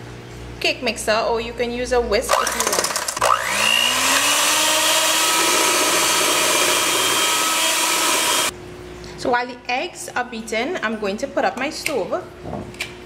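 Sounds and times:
electric hand mixer whining: 2.3 - 8.5.

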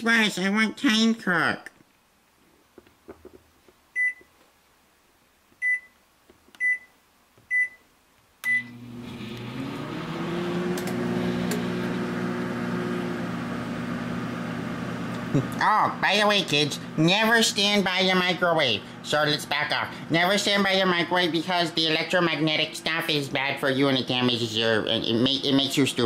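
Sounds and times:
microwave keypad beeping: 4.0 - 4.3, 5.6 - 6.0, 6.6 - 6.9, 7.5 - 7.8, 8.4 - 8.8
microwave oven humming: 8.4 - 26.0.

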